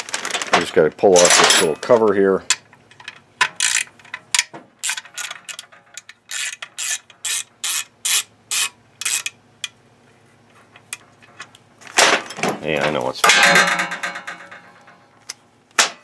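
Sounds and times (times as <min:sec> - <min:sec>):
socket ratchet clicking: 0:06.3 - 0:09.7.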